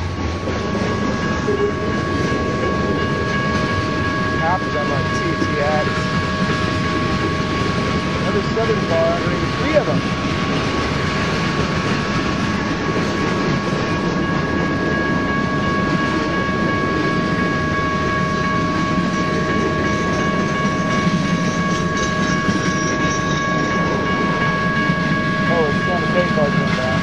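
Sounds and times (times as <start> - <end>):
freight train wheels rumbling on rails: 0.0 - 27.0
high-pitched ring: 0.5 - 10.2, 12.4 - 27.0.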